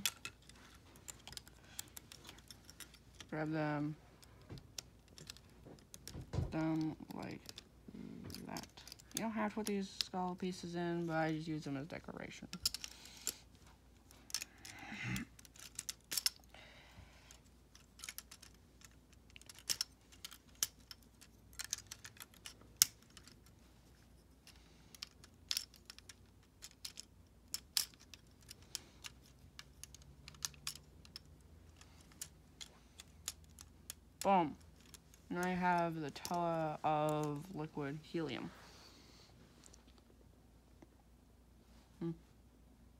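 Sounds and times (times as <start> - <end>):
plastic parts clicking and rattling: 0.0 - 16.5, 17.3 - 37.6
soft rustle: 27.9 - 40.9.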